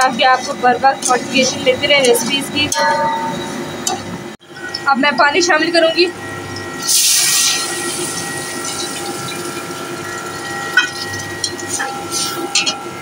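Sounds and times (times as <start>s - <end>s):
hot oil hissing: 6.7s - 12.6s
water splashing into hot oil: 6.9s - 11.4s.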